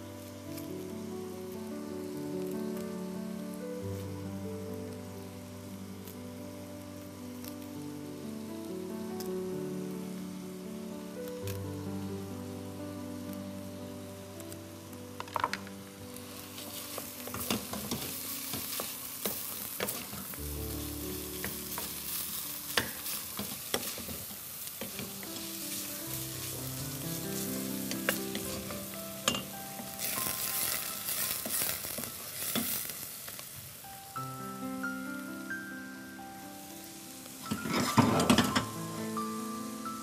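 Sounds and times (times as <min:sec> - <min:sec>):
filling sizzling in a pot: 0:00.0 - 0:40.0
soft background music: 0:00.0 - 0:40.0.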